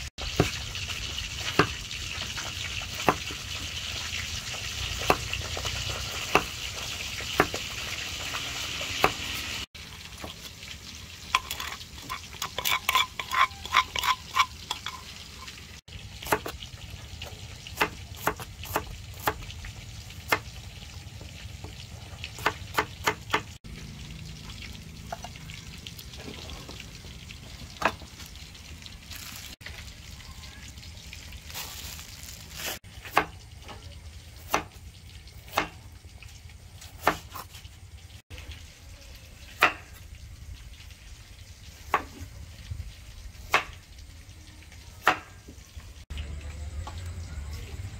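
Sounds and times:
knife chopping on wooden board: 0:06.1 - 0:06.6.

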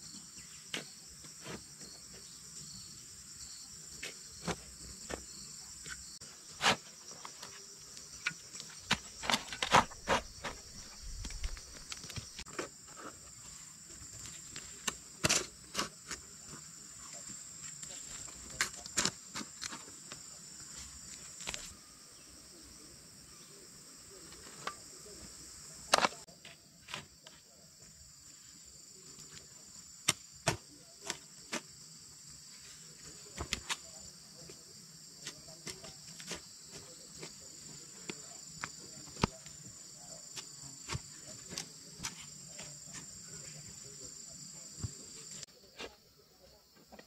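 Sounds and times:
insects buzzing: 0:00.0 - 0:47.0
hoe chopping dry soil: 0:06.5 - 0:06.9, 0:08.2 - 0:12.5, 0:14.5 - 0:16.3, 0:30.0 - 0:31.7.

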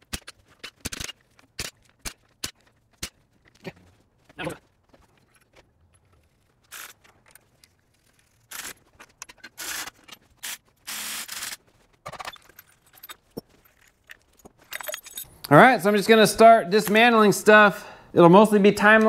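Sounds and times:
metal scrapes and clinks of tools: 0:12.1 - 0:15.3.

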